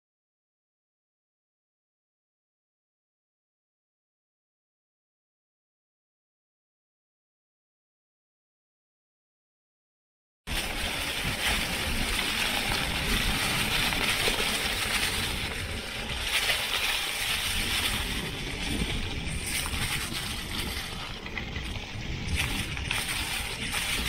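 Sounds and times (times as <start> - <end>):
bike tyres rolling over dry leaves: 10.5 - 24.0
low rumble from the ride: 10.5 - 24.0.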